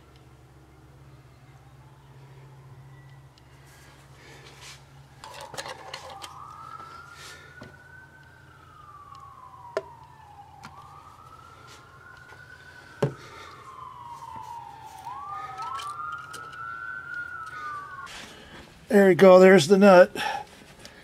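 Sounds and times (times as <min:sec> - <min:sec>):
emergency vehicle siren wailing: 0:00.2 - 0:20.5
second siren tone: 0:00.6 - 0:04.0, 0:04.8 - 0:18.6.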